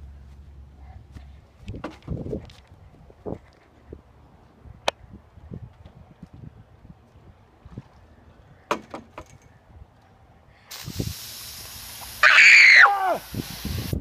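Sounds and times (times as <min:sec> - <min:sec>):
aerosol can hissing: 0:10.7 - 0:14.0
person yelling: 0:12.2 - 0:13.3.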